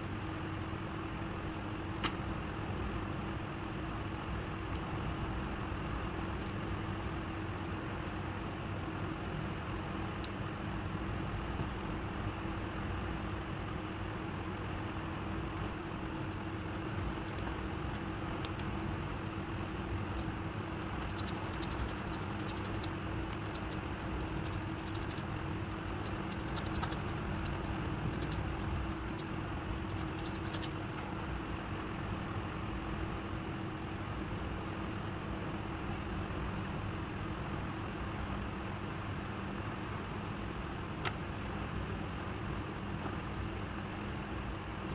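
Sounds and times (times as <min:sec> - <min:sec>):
background hum: 0:00.0 - 0:44.9
thread rubbing on newspaper: 0:16.1 - 0:30.8.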